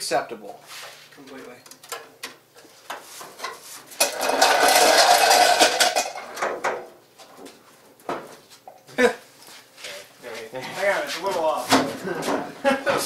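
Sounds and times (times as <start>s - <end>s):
metal clattering and scraping: 2.8s - 6.9s.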